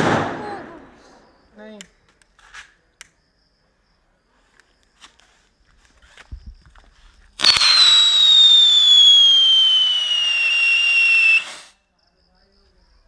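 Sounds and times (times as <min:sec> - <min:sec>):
whistling firecracker: 0:07.4 - 0:11.8.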